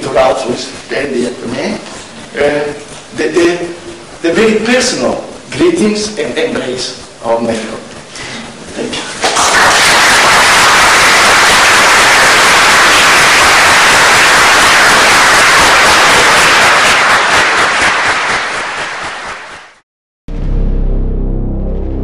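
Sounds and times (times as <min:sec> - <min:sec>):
audience applauding: 0:09.2 - 0:19.8.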